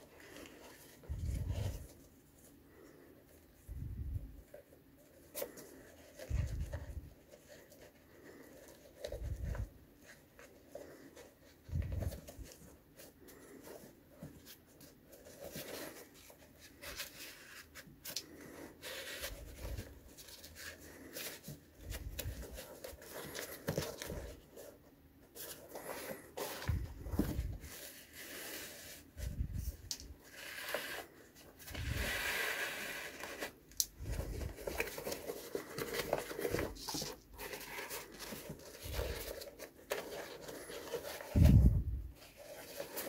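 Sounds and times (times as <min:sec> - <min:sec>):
shoelaces rustling and scraping: 0:00.0 - 0:43.0
shoe handling noise: 0:25.5 - 0:27.8, 0:33.4 - 0:43.0.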